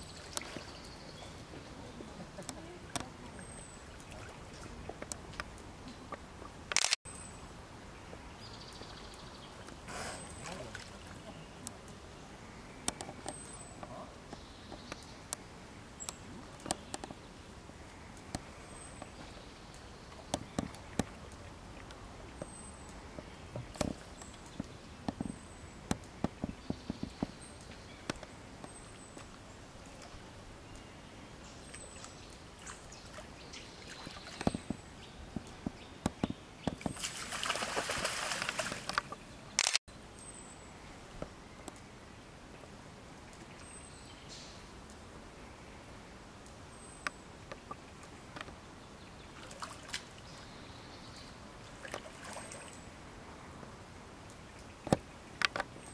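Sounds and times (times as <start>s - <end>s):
water splashing: 0.0s - 6.7s, 9.5s - 11.7s, 36.8s - 39.3s, 49.3s - 50.2s, 51.6s - 52.9s
steady outdoor hiss: 0.0s - 55.9s
sharp clicks: 6.7s - 7.0s, 38.4s - 39.8s
bear splashing in water: 36.8s - 39.2s.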